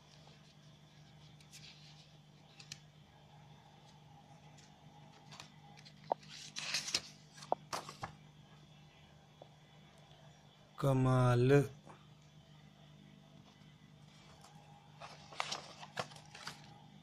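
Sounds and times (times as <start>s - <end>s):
paper rustle: 0.0s - 2.8s, 3.8s - 8.2s, 14.0s - 16.9s
steady low hum: 0.0s - 17.0s.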